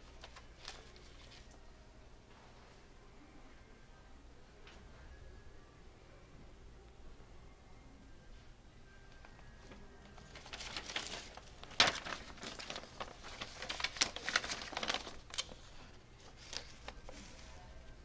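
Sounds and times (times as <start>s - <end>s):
paper rustling and crinkling: 0.0s - 1.6s, 9.1s - 18.0s.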